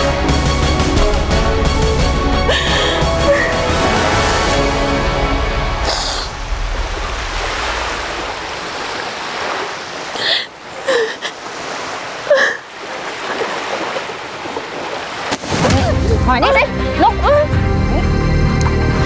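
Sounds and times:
woman sobbing: 0:02.4 - 0:03.8, 0:10.2 - 0:11.4, 0:12.3 - 0:12.7, 0:15.8 - 0:18.1
sea surf washing onto beach: 0:02.6 - 0:16.4.

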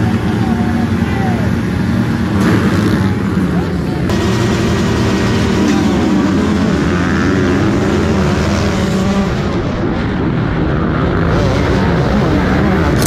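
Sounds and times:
two-stroke engine revving high: 0:00.0 - 0:10.0
motocross bikes at full throttle: 0:00.0 - 0:13.0.

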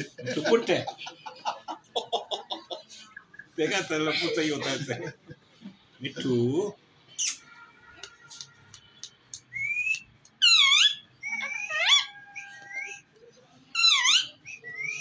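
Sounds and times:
parakeet whistling and chirping: 0:09.5 - 0:13.1, 0:13.8 - 0:15.0.

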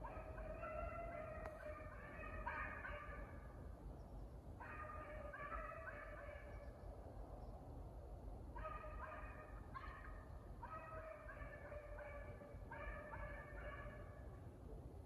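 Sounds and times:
distant hounds baying: 0:00.0 - 0:03.4, 0:04.6 - 0:06.7, 0:08.6 - 0:14.2.

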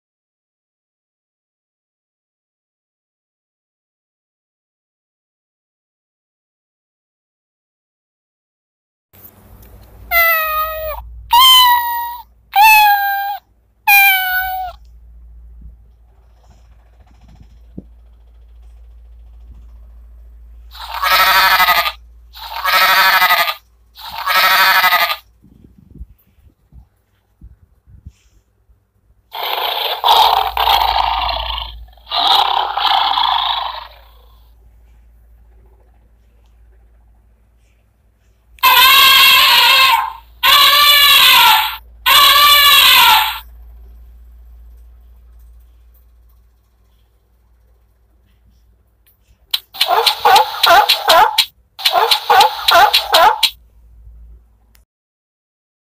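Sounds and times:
recorded cat meowing from small speaker: 0:10.1 - 0:14.8, 0:20.7 - 0:25.2, 0:38.6 - 0:43.5
recorded tiger roar: 0:29.3 - 0:34.5.

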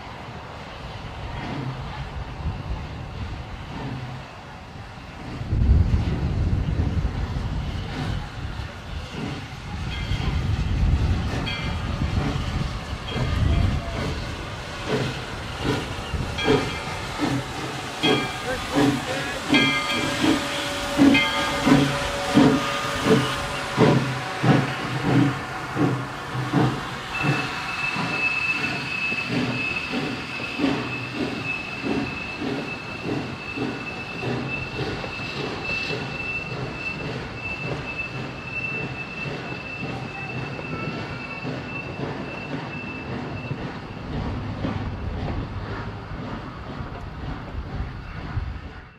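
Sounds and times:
steam locomotive chuffing: 0:00.0 - 0:48.9
train wheel squeal: 0:05.1 - 0:48.9.

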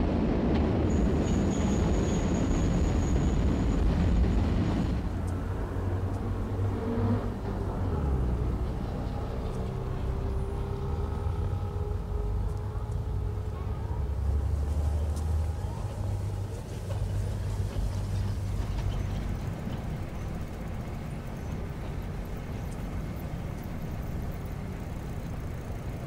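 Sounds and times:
tram rumbling: 0:00.0 - 0:26.0
murmur of crowd voices: 0:13.4 - 0:17.8.

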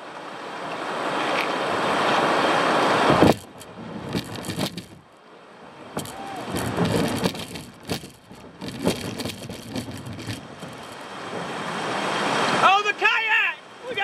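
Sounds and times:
rushing water: 0:00.0 - 0:14.0
kayak hull scraping over rock: 0:01.2 - 0:05.1, 0:05.8 - 0:12.1.

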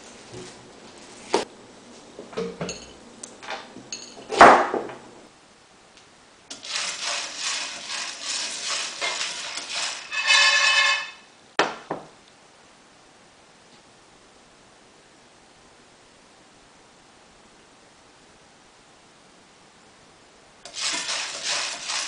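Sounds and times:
seeds rattling in a frying pan: 0:06.5 - 0:11.2, 0:20.7 - 0:22.0.

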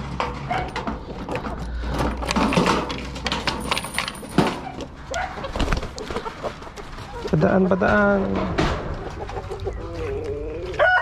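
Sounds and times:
chain and padlock rattling: 0:02.0 - 0:04.8
hens clucking: 0:04.4 - 0:11.0.

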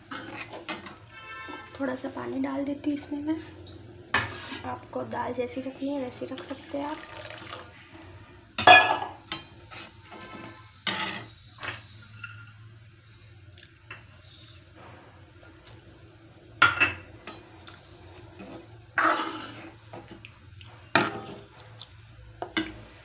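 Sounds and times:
metal spatula scraping pan: 0:00.0 - 0:01.8, 0:03.4 - 0:04.8, 0:09.3 - 0:12.6, 0:18.4 - 0:19.8.

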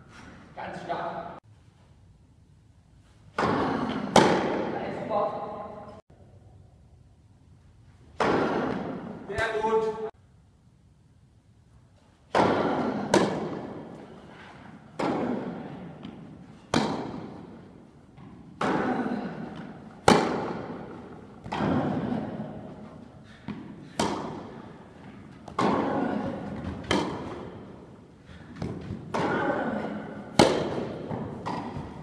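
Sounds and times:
tennis ball bouncing: 0:03.3 - 0:04.7, 0:12.3 - 0:32.0
tennis racquet striking ball: 0:03.4 - 0:04.8, 0:08.2 - 0:09.3, 0:12.3 - 0:32.0.

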